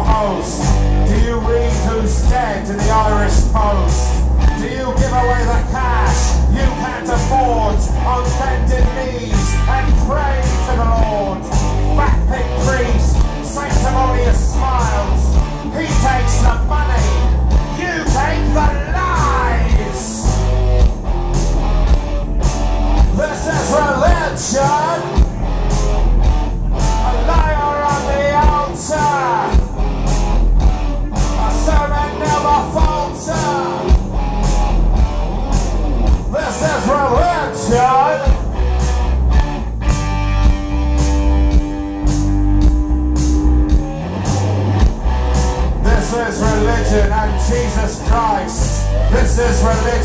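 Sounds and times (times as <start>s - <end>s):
man singing into a microphone: 0.0s - 20.2s, 23.2s - 25.2s, 27.0s - 29.6s, 31.4s - 33.9s, 36.3s - 38.4s, 45.8s - 50.0s
bass guitar: 0.0s - 50.0s
electric guitar: 0.0s - 50.0s
steady drum beat: 0.0s - 50.0s.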